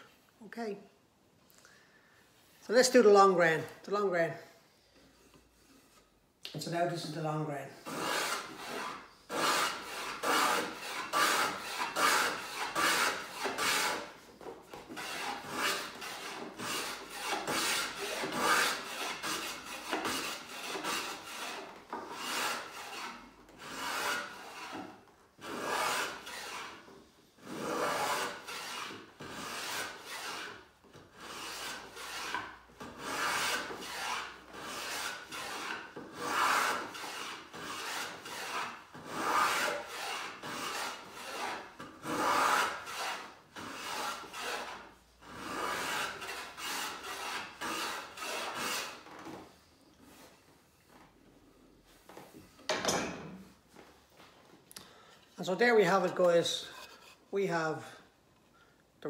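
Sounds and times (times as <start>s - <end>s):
hand plane shaving wood: 7.8s - 49.2s.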